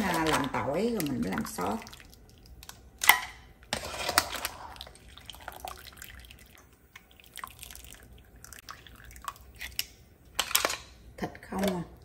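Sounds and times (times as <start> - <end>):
water dripping into a pot: 0.0 - 3.2, 4.7 - 10.1.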